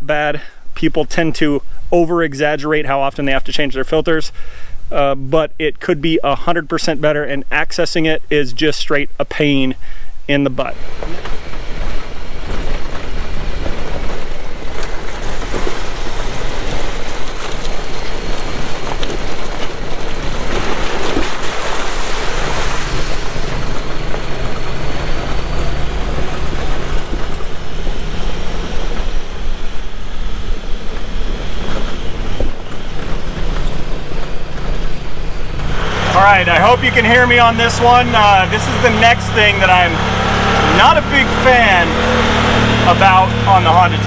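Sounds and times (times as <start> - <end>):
engine running steadily: 9.0 - 44.0
wind and tyre noise: 10.7 - 44.0.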